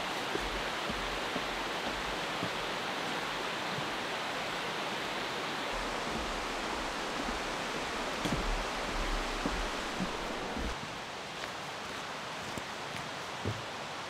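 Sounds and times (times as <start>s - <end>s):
mountain river rushing: 0.0s - 14.0s.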